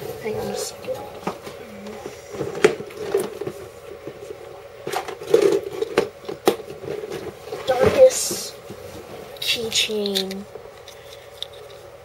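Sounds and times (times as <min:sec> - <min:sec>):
objects clicking and knocking: 0:04.8 - 0:08.4.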